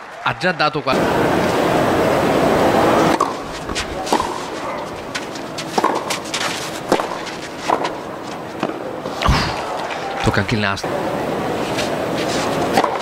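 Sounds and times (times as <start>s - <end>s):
footstep clicks: 3.1s - 8.8s
racket striking ball: 3.1s - 10.0s, 11.8s - 13.0s.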